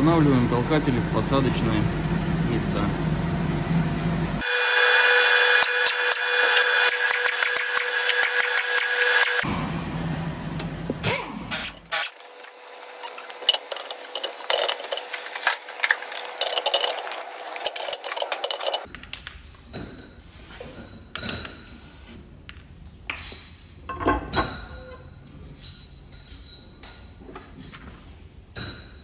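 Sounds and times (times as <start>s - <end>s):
steel engine parts clinking: 11.5s - 18.9s, 23.1s - 27.9s.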